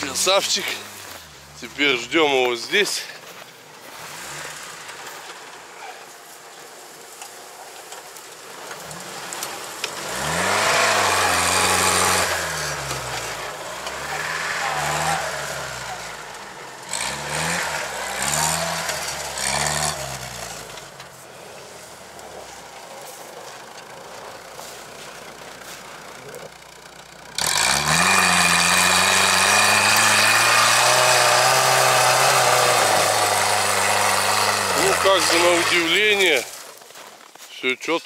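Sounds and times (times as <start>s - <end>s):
off-road vehicle engine revving: 0.0s - 36.7s
loud engine running close by: 8.4s - 36.5s.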